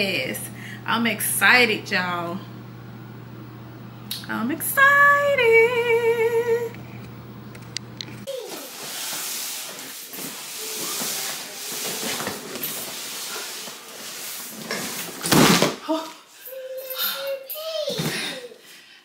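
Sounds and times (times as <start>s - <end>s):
cardboard box scraping on hardwood floor: 8.3s - 15.2s.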